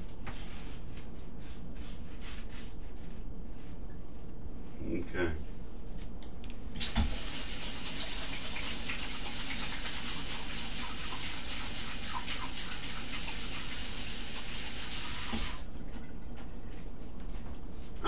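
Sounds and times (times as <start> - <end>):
faucet running into a metal sink: 6.8 - 15.7
hands washing under water: 6.8 - 18.0.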